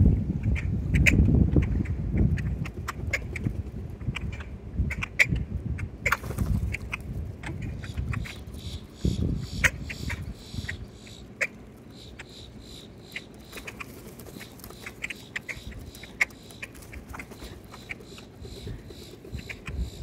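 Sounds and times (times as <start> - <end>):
birds chipping: 1.0 - 20.0.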